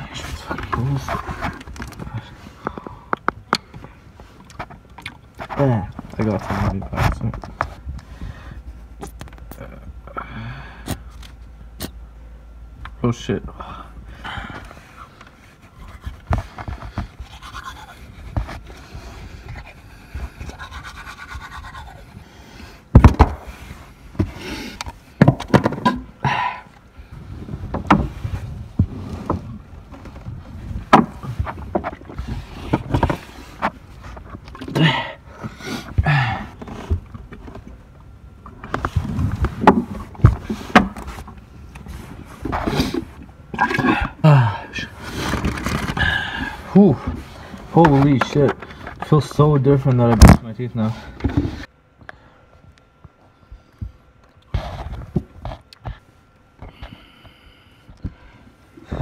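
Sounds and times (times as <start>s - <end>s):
knocks against cardboard box: 22.9s - 23.5s
murmured voice: 43.8s - 45.0s.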